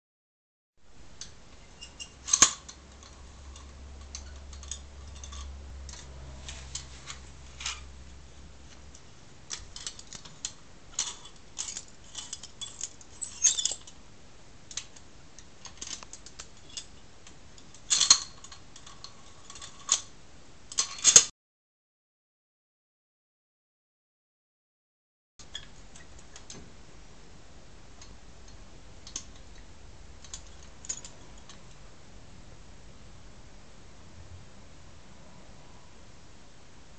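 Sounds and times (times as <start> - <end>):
metallic clicks and scrapes: 1.2 - 7.9, 8.7 - 14.0, 14.7 - 20.1, 20.7 - 21.3, 30.2 - 31.8.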